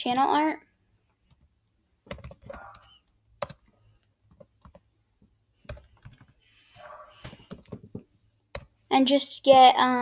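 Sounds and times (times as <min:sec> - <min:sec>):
keyboard typing clicks: 0:02.1 - 0:04.8, 0:05.7 - 0:06.4.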